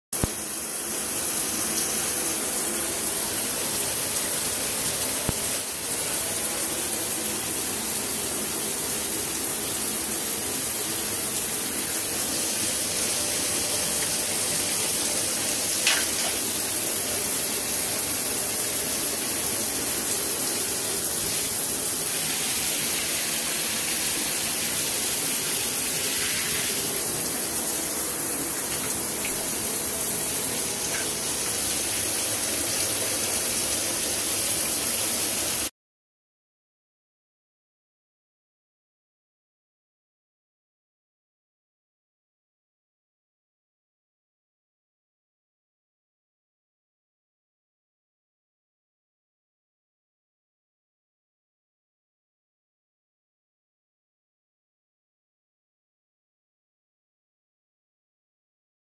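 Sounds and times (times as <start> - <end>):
shower water hissing onto tiles: 0.2 - 35.7.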